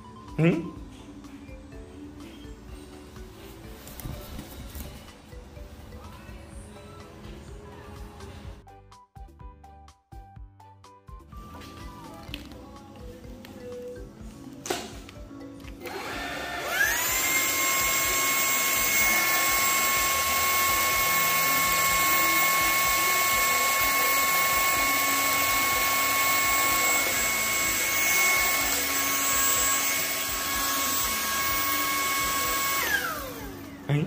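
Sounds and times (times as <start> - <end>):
vacuum cleaner motor whining: 15.8 - 34.0.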